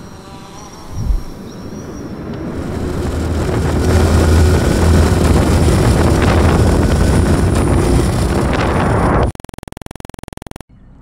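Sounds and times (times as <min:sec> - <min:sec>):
vehicle rumbling at speed: 0:00.9 - 0:09.3
wind rush: 0:01.0 - 0:09.3.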